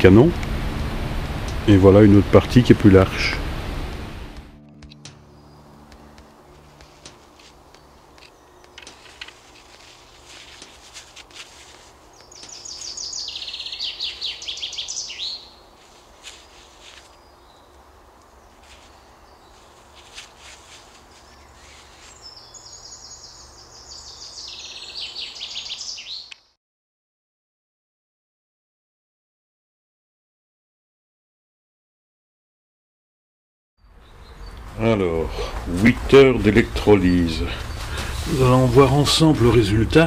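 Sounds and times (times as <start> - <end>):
songbird singing: 4.7 - 26.6, 33.8 - 40.0
faint rustling: 5.9 - 13.2, 15.7 - 22.7.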